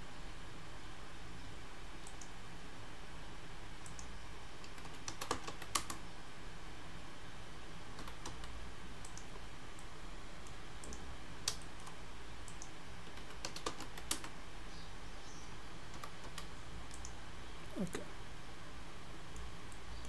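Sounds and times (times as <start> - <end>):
keyboard and mouse clicks: 2.0 - 2.3, 3.8 - 6.0, 7.9 - 14.4, 15.9 - 17.2.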